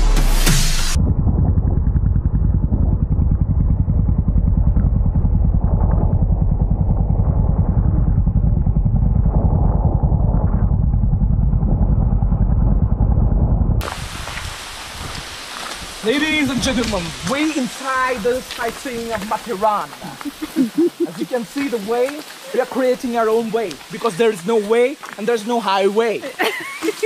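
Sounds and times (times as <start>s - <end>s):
music: 0.0s - 1.0s
motorcycle exhaust thumping: 0.9s - 14.0s.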